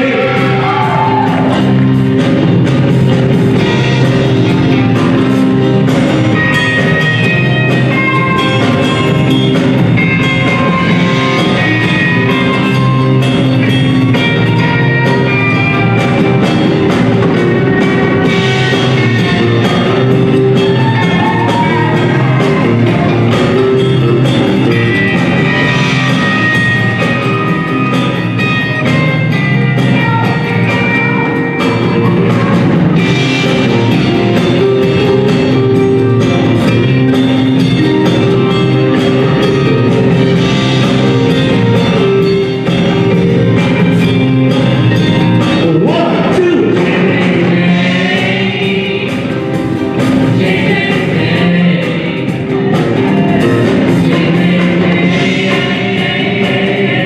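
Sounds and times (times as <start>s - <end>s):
live rock band playing: 0.0s - 57.0s.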